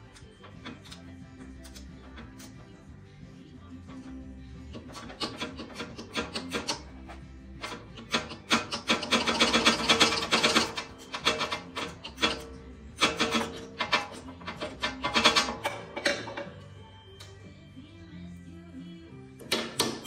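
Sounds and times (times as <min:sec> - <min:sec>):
wrench rasping clicks: 0:00.1 - 0:02.6, 0:04.7 - 0:16.5.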